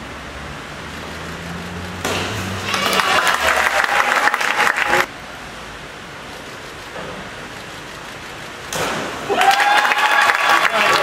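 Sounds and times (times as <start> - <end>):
spectators applauding: 2.6 - 5.1, 9.3 - 11.0.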